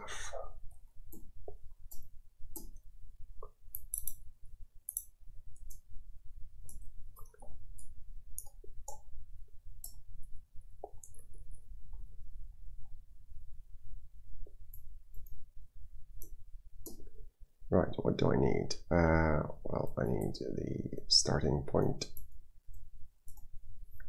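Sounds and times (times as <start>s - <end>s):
keyboard typing clicks: 3.7s - 4.2s.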